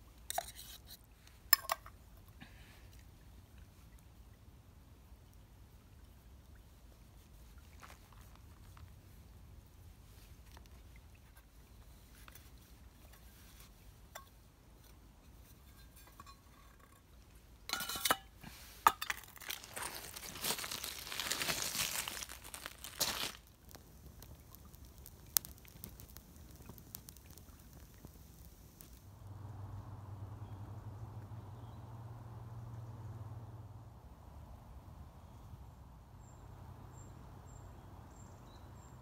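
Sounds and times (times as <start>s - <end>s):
sticks handled on gravel: 17.7s - 27.8s
paper tissue crumpling: 19.2s - 23.6s.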